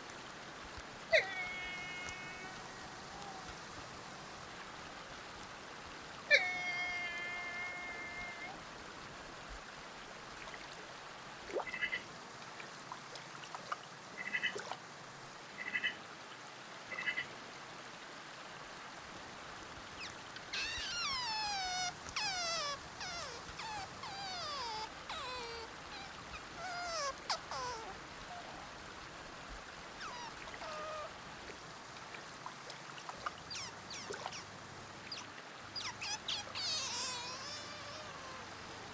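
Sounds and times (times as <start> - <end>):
otter chirps: 20.0 - 28.0, 30.0 - 31.1, 33.5 - 34.5, 35.1 - 38.5
otter squealing whistles: 20.5 - 28.4, 30.0 - 31.1, 33.5 - 34.4, 35.8 - 38.6.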